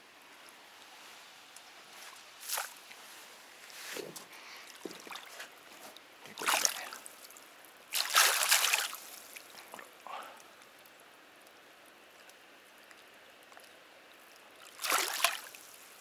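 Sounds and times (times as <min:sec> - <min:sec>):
faint flowing water: 0:00.0 - 0:16.0
water splashing: 0:04.6 - 0:10.8, 0:14.6 - 0:15.8.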